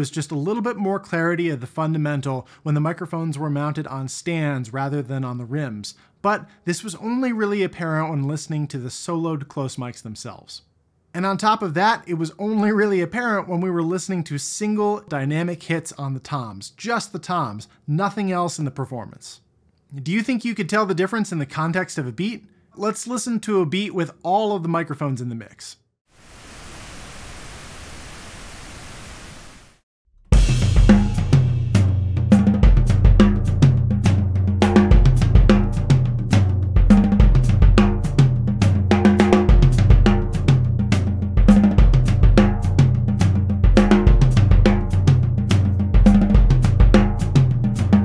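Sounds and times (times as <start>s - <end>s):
steady pink noise: 26.2s - 29.7s
drum kit beat: 30.3s - 48.0s.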